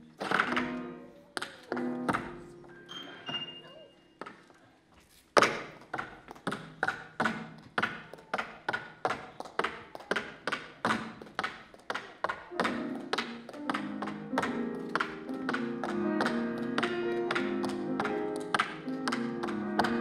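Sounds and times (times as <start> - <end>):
tap shoes on stage floor: 5.3 - 20.0
piano chords: 12.5 - 20.0.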